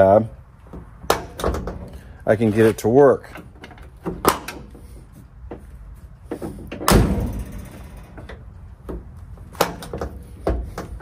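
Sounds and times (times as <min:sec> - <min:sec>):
steel truck door slamming: 0:06.6 - 0:08.2.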